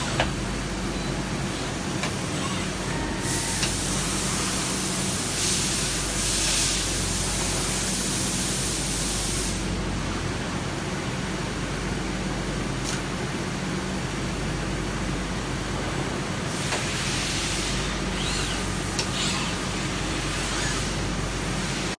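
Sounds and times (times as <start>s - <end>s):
machine hum: 0.0s - 21.9s
loud machine hiss: 2.2s - 9.8s, 16.5s - 21.9s.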